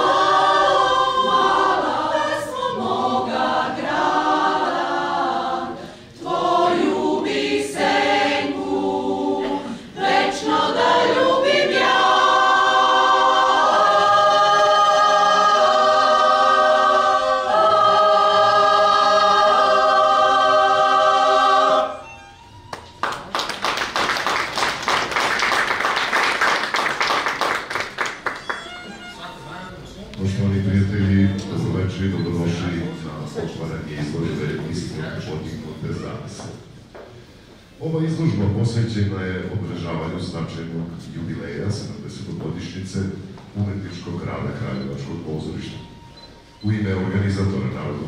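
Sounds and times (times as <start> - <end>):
choir singing a cappella: 0.0 - 22.2
audience applauding: 22.7 - 29.0.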